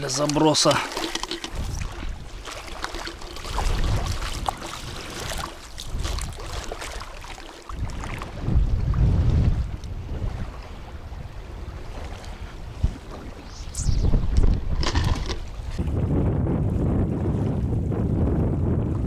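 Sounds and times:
handling clicks and rustles: 0.0 - 2.0, 14.5 - 15.5
wind buffeting microphone: 0.0 - 19.0.

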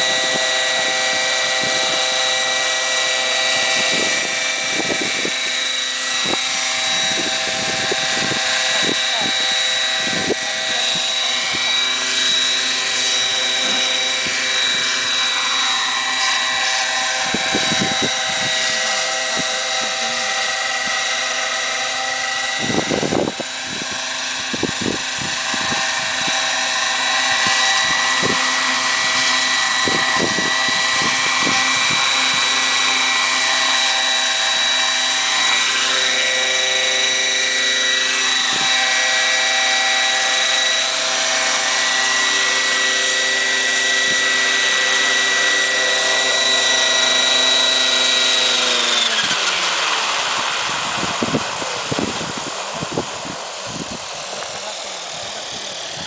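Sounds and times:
model helicopter whine: 0.0 - 56.0.

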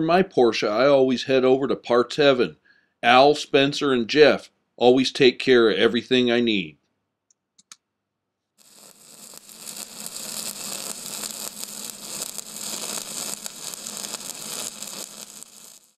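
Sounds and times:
crackling hiss: 8.6 - 16.0.

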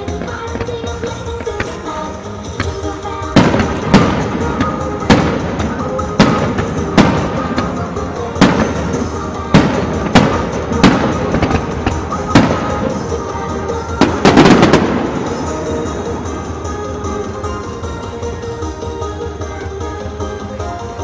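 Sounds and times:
firework shells bursting: 0.0 - 16.3
music over loudspeakers: 0.0 - 21.0.

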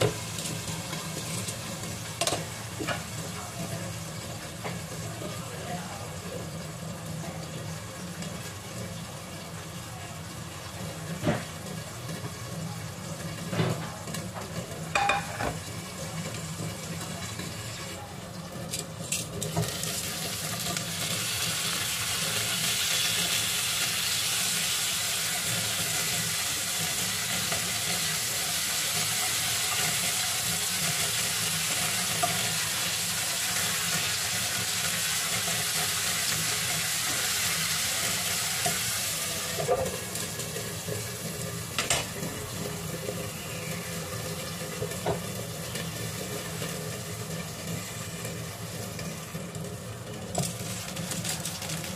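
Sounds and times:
vegetables sizzling in oil: 0.0 - 51.9
glass lid placed on pan: 15.0 - 15.6.

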